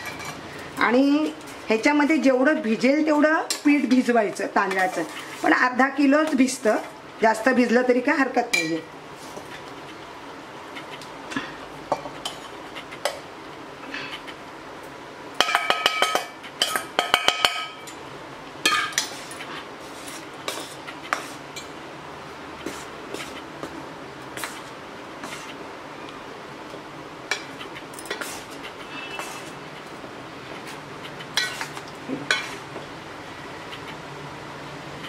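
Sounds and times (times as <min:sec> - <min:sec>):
metal spatula scraping steel pot: 0:04.6 - 0:05.7, 0:27.3 - 0:29.6, 0:31.2 - 0:32.6.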